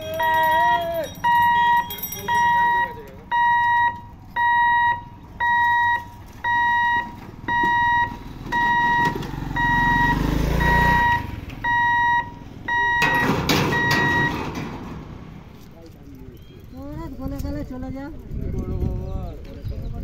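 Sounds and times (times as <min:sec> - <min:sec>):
level crossing hooter beeping: 0:00.0 - 0:14.6
motorcycle engine rumbling past: 0:05.4 - 0:17.2.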